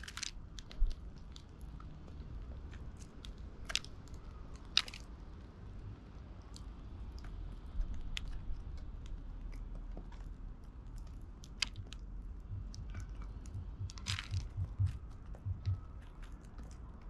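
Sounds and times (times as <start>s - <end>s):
soft low knocks: 11.8s - 16.0s.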